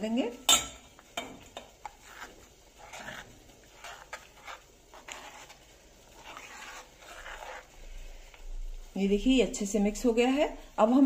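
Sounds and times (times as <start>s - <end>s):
spoon scraping a pan: 0.4s - 8.5s.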